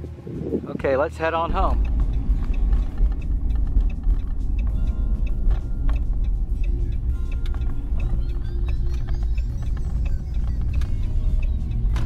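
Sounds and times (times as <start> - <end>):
truck engine and road rumble: 0.0 - 12.0
small rattles and clicks: 1.8 - 11.1.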